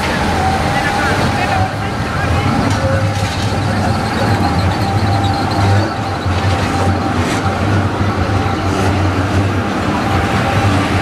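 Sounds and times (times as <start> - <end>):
tram passing on rails: 0.0 - 11.0.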